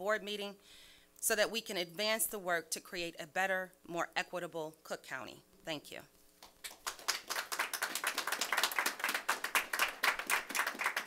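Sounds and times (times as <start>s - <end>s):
group applauding: 6.4s - 11.0s.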